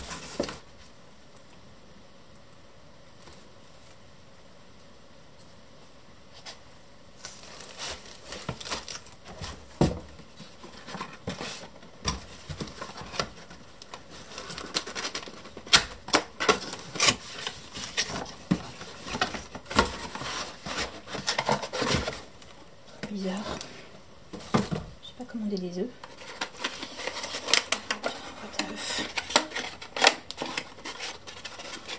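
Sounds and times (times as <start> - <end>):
paper packaging rustling: 0.0 - 0.8, 7.2 - 25.0, 26.0 - 31.9.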